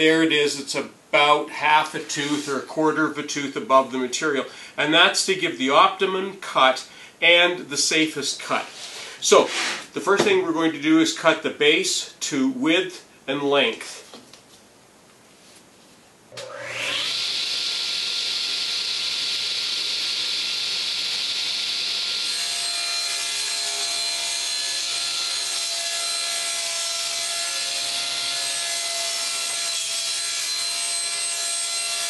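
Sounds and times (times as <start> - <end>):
saw blade cutting plywood: 16.4 - 32.0
table saw motor whine: 16.4 - 32.0.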